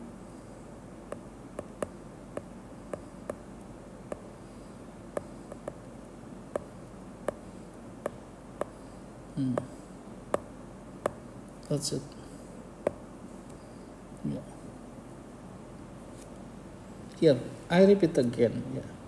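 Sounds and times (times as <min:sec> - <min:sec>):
faint background noise: 0:00.0 - 0:19.0
stylus tapping on glass screen: 0:01.1 - 0:03.4, 0:04.1 - 0:04.3, 0:05.2 - 0:05.8, 0:06.5 - 0:06.7, 0:07.3 - 0:08.8, 0:10.3 - 0:11.2.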